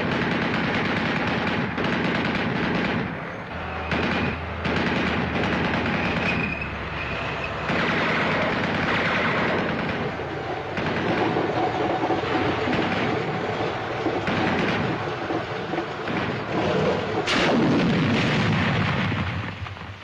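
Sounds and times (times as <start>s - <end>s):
machine-gun and rifle fire: 0.0s - 3.2s, 3.9s - 6.7s, 7.6s - 11.6s, 12.6s - 13.3s, 14.2s - 15.1s, 16.0s - 19.7s.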